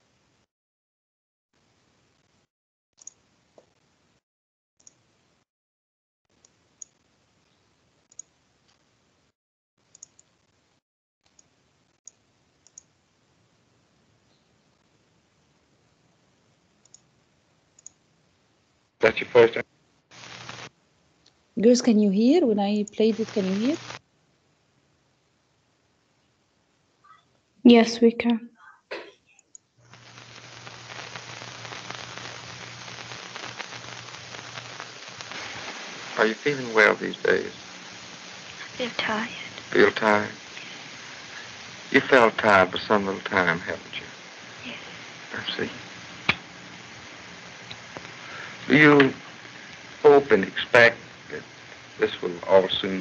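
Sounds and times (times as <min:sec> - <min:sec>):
computer mouse clicks: 0:09.9 - 0:10.3, 0:11.3 - 0:11.5, 0:12.1 - 0:12.9, 0:16.8 - 0:17.1, 0:17.8 - 0:18.0
low hiss: 0:09.9 - 0:27.9, 0:28.6 - 0:53.0
steady low hum: 0:17.8 - 0:21.6, 0:22.9 - 0:26.8, 0:29.8 - 0:53.0.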